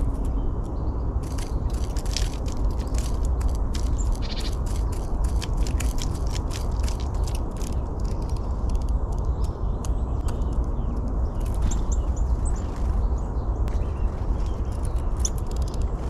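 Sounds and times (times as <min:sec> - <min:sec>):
quick sharp ticks and clicks: 0:00.0 - 0:12.2
wind rumbling on microphone: 0:00.0 - 0:16.0
high bird chirps: 0:03.8 - 0:05.2.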